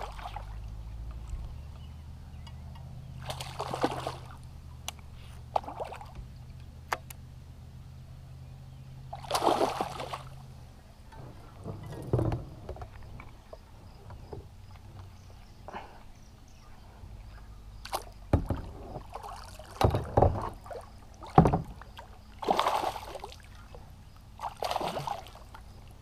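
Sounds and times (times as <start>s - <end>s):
paddle splashing in water: 0.0s - 0.7s, 3.2s - 4.4s, 9.1s - 10.4s, 17.8s - 23.8s, 24.4s - 25.6s
low steady hum: 0.0s - 26.0s.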